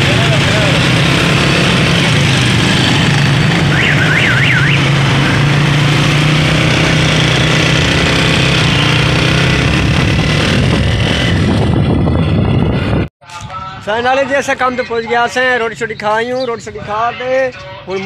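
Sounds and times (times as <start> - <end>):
motorcycle engine running: 0.0 - 13.1
street traffic noise: 0.0 - 18.0.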